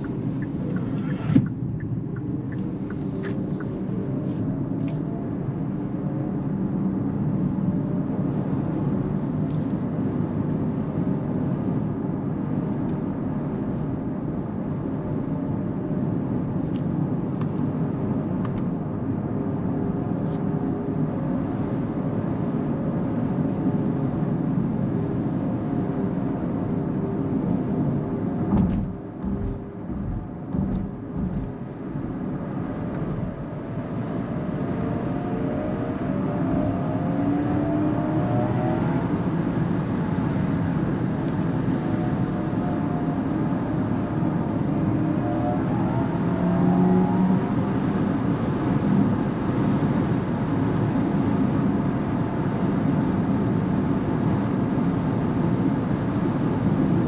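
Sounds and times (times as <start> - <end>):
tyre and road rumble: 27.8 - 34.1
knock: 28.5 - 31.6.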